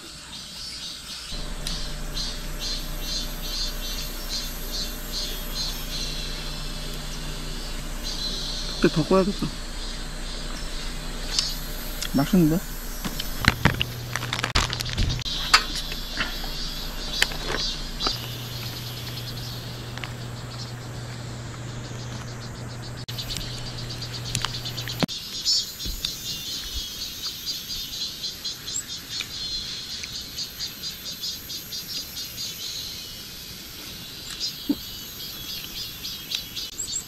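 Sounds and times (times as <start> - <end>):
cicadas pulsing buzz: 0.0 - 37.0
low hum: 1.4 - 25.1.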